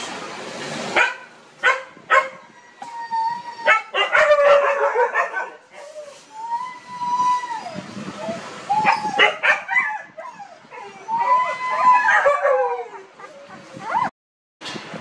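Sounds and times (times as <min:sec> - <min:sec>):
puppies whimpering and yelping: 0:02.2 - 0:14.1.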